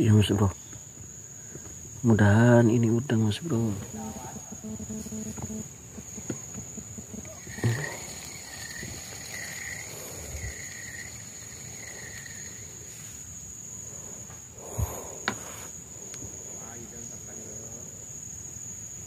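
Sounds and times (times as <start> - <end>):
high-pitched insect drone: 0.0 - 19.0
dull thump: 14.3 - 15.5.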